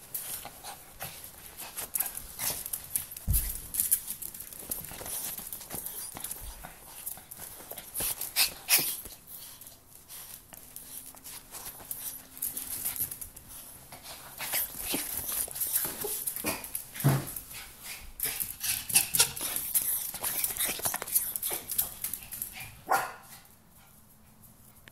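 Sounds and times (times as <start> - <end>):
scratchy clicks and scuffs: 0.0 - 22.7.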